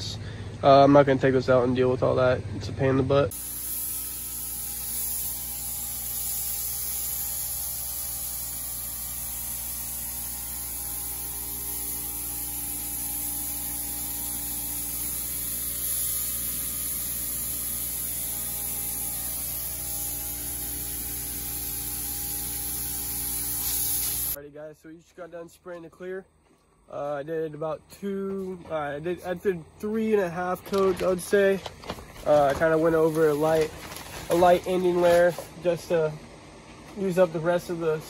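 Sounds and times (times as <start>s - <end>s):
steady hum: 0.0s - 38.0s
paint spray gun hissing: 3.3s - 24.4s, 32.2s - 35.5s.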